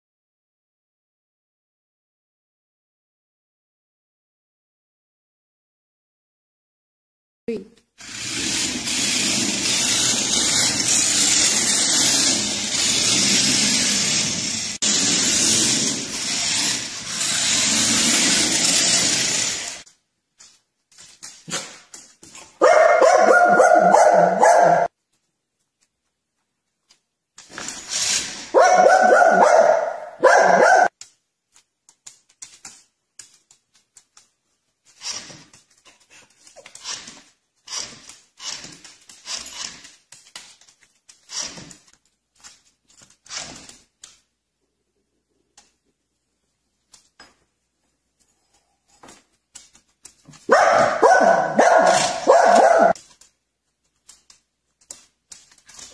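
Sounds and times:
dogs barking and whining: 21.5s - 24.9s, 28.1s - 30.9s, 50.3s - 53.2s.

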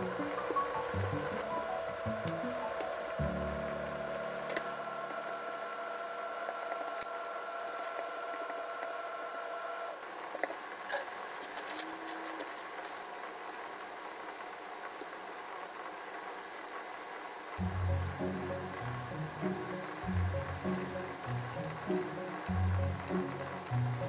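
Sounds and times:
steady hum: 0.0s - 6.9s, 17.6s - 24.0s.

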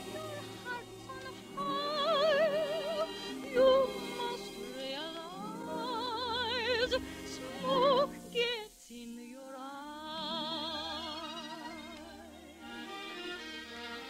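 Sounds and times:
studio orchestra playing ballad: 0.0s - 8.6s
person singing with vibrato: 0.0s - 14.0s.

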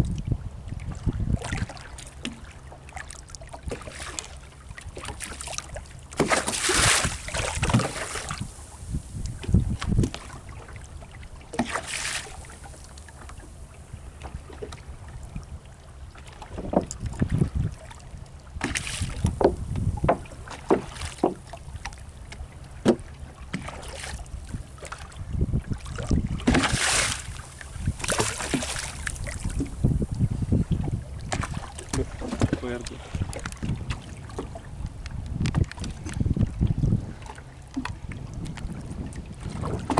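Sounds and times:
wind on microphone: 0.0s - 2.0s, 6.4s - 15.8s, 16.5s - 21.9s, 22.9s - 39.9s
low steady hum: 0.0s - 39.9s
water slapping boat hull: 0.0s - 39.9s
splashes: 1.4s - 4.4s, 5.0s - 8.9s, 11.4s - 13.2s, 18.6s - 19.4s, 20.2s - 22.0s, 25.8s - 29.9s, 31.2s - 34.6s.

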